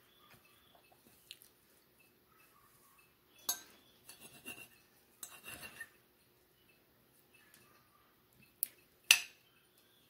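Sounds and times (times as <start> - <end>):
fork clinking on ceramic plate: 3.4 - 5.9.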